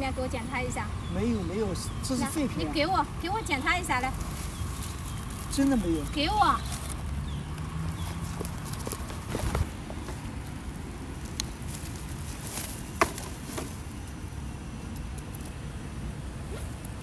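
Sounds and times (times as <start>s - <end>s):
plastic sack rustling: 4.0s - 7.0s, 11.5s - 13.9s.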